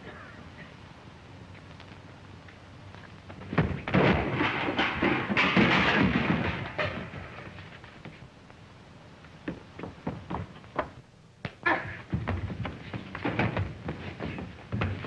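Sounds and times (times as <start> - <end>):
loud thuds and crashing: 3.4 - 7.6.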